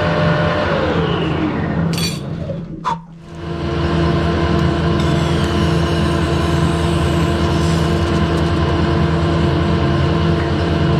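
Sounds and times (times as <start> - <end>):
lathe running hum: 0.0 - 10.9.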